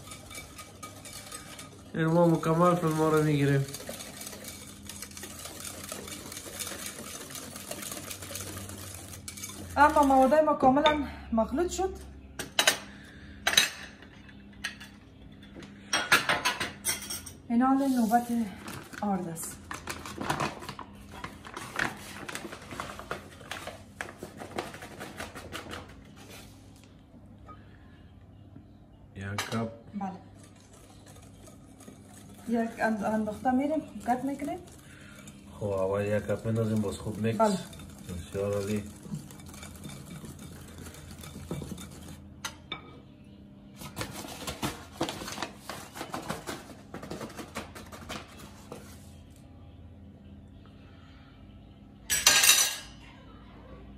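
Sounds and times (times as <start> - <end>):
whisk stirring batter in glass bowl: 0.0 - 10.3, 30.2 - 42.2
paper bag crinkling: 18.6 - 25.3
metal measuring cup scooping: 30.5 - 42.2.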